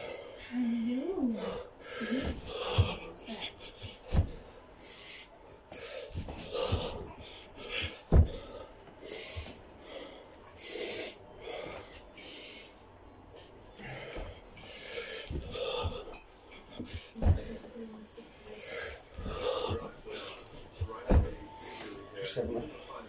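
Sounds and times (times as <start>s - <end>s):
man breathing hard: 0.0s - 17.6s, 18.4s - 23.0s
body thudding on carpeted floor: 2.2s - 4.6s, 6.1s - 7.1s, 7.7s - 8.7s, 15.2s - 17.7s, 19.1s - 22.7s.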